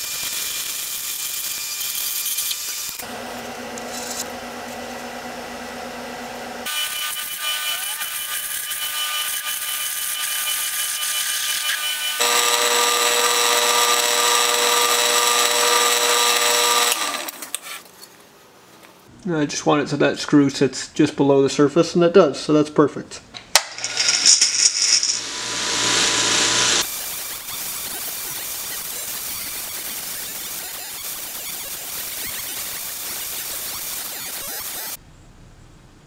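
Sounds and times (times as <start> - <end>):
metal lathe whine: 6.6 - 17.6, 23.8 - 35.0
cutting hiss: 26.7 - 35.0.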